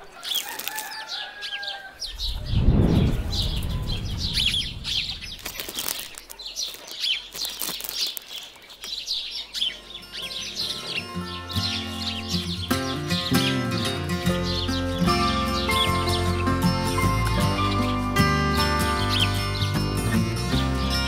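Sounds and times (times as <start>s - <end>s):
small birds chirping: 0.0s - 21.0s
low rumble: 2.0s - 6.0s.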